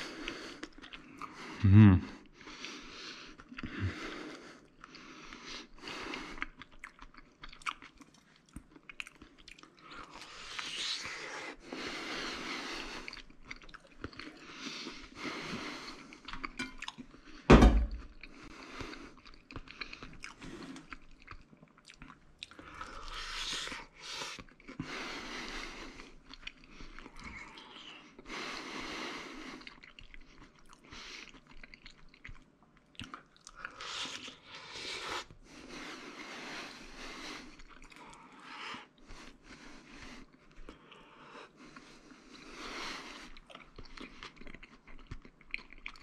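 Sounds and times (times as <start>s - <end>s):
person chewing crunchy food: 2.3s - 28.3s, 29.4s - 46.0s
sharp loud knock: 17.5s - 18.0s.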